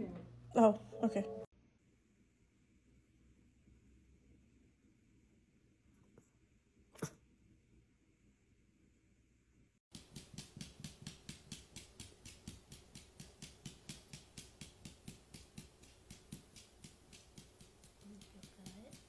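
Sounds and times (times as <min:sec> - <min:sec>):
dog foot thumping on floor: 0:09.9 - 0:19.0.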